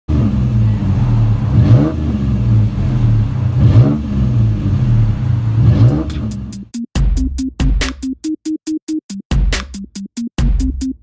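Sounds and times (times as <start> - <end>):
truck engine idling and revving: 0.0 - 6.8.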